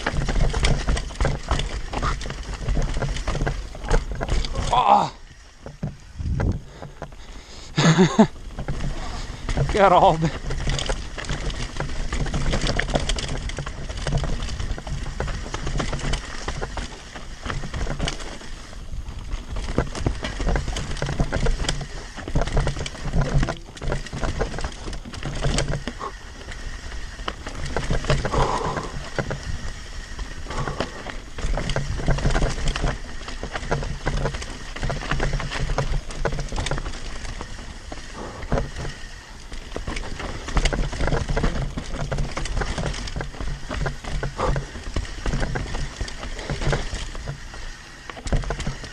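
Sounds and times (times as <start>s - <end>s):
wind rumbling on microphone: 0.0s - 7.4s
bike tyres on dirt and rocks: 0.0s - 48.9s.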